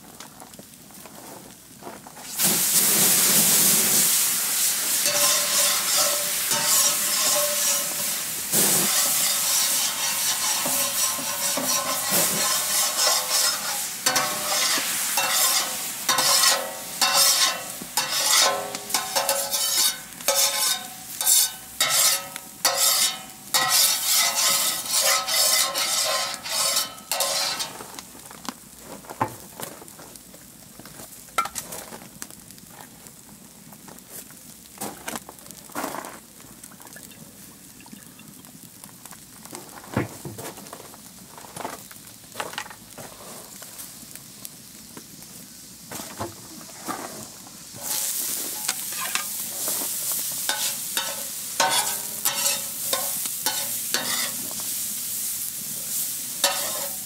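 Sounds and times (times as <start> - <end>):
water hissing on hot griddle: 0.6 - 57.0
wooden scraper scraping griddle: 5.0 - 28.0, 45.9 - 54.7, 56.4 - 57.0.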